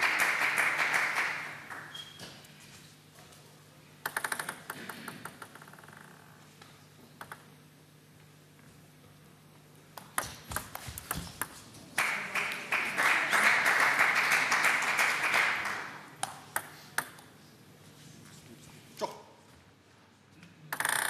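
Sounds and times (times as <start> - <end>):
audience applause: 0.0 - 1.9, 12.0 - 16.2
table tennis ball clicks: 4.0 - 5.7, 7.2 - 7.5, 16.2 - 17.3
ball bouncing: 10.0 - 11.7.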